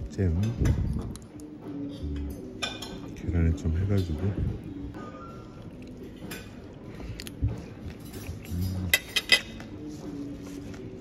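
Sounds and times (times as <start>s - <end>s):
metal fork clinking on plate: 8.0s - 9.6s.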